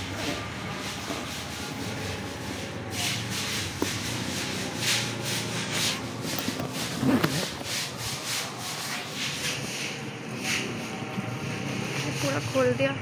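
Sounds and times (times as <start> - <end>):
zipper rasping open: 5.6 - 7.9.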